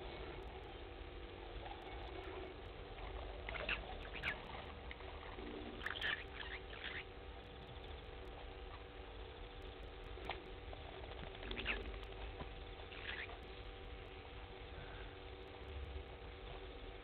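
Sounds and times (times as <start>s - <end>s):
faint steady hum: 0.0s - 17.0s
small animal squeaks: 3.5s - 4.6s, 5.8s - 7.1s, 11.4s - 12.0s, 12.9s - 13.4s.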